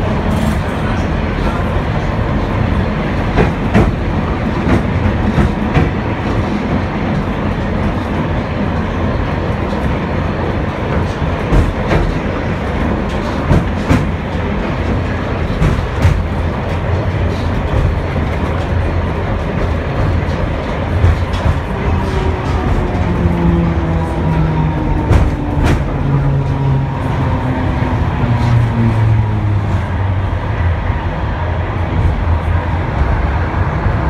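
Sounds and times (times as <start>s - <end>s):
tram wheels rumbling on rail: 0.0s - 34.0s
track clicks and knocks: 3.1s - 29.8s.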